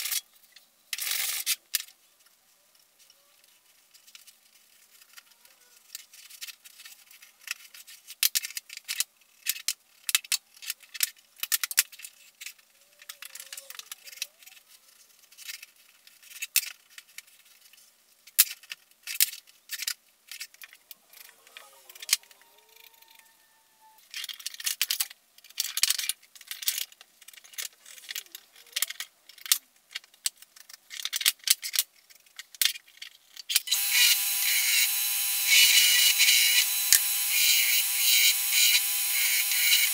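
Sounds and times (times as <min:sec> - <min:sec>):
belt grinder running: 0:33.7 - 0:39.9.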